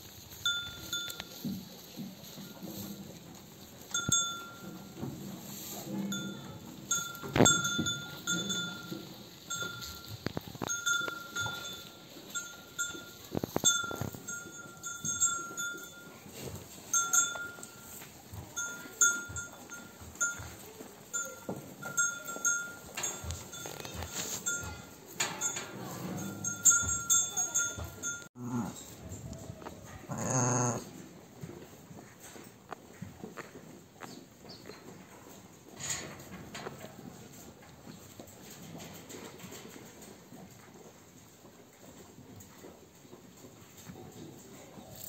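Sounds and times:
sheep bell clinking: 0.1s - 29.4s
low sheep bleats: 30.0s - 30.9s.

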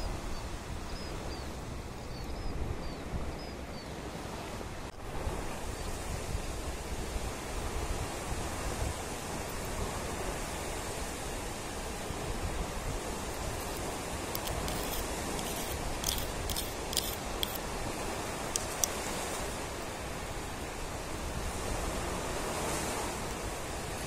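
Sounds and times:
surf rushing on a beach: 0.0s - 24.0s
shells clicking and tapping: 14.3s - 17.6s, 18.5s - 19.0s.

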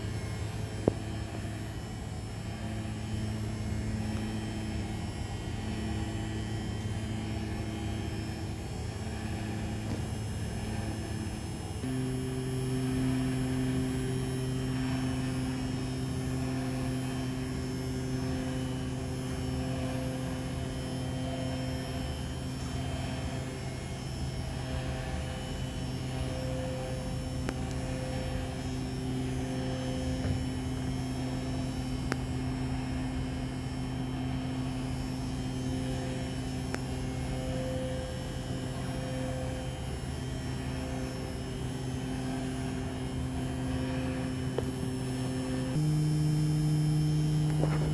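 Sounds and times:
string vibrator buzzing hum: 0.0s - 47.9s.

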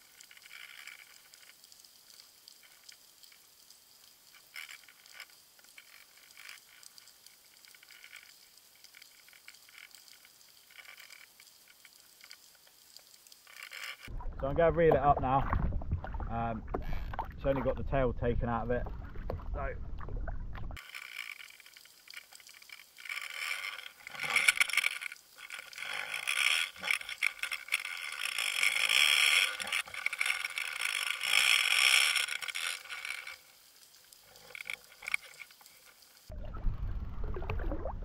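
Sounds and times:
scraping and clicking: 13.4s - 14.1s, 20.6s - 33.5s, 34.1s - 36.0s
water rushing past camera: 36.3s - 38.0s.

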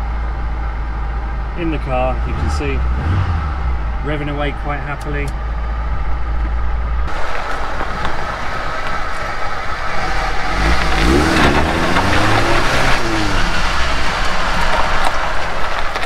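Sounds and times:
car engine running: 0.0s - 16.0s
tyres on gravel: 6.4s - 16.0s.

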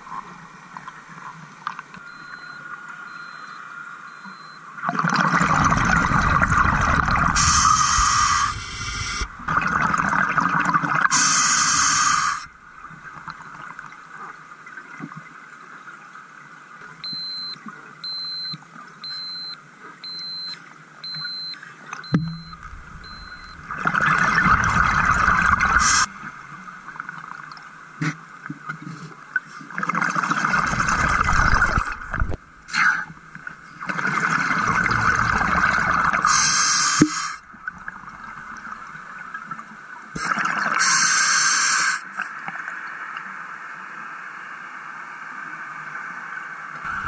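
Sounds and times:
short high beeps: 2.1s - 4.6s, 17.0s - 23.7s.

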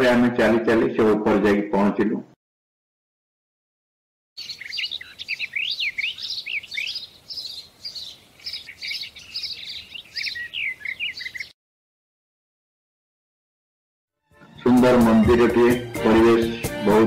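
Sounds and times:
songbirds chirping: 4.4s - 11.6s, 14.4s - 17.0s.

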